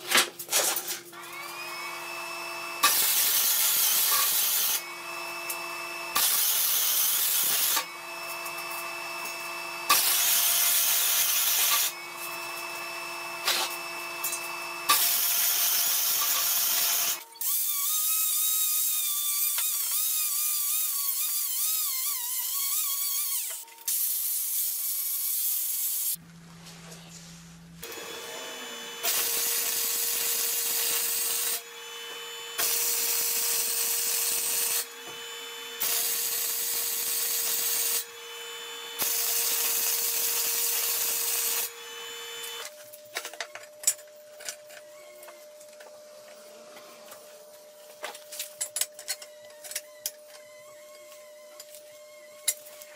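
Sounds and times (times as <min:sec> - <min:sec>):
welder arc crackling and hissing: 0:02.8 - 0:04.8, 0:06.1 - 0:07.9, 0:08.7 - 0:12.4, 0:22.6 - 0:26.2, 0:26.9 - 0:38.1, 0:39.0 - 0:42.7.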